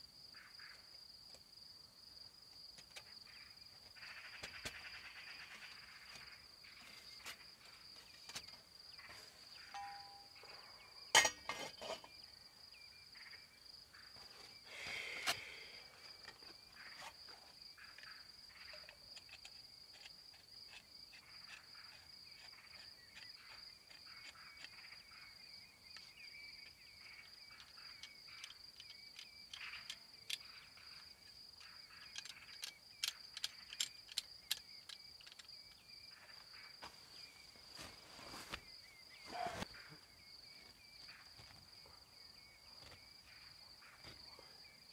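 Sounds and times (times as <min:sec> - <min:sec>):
crickets trilling: 0:00.0 - 0:44.9
sharp clicks and knocks: 0:31.6 - 0:35.8.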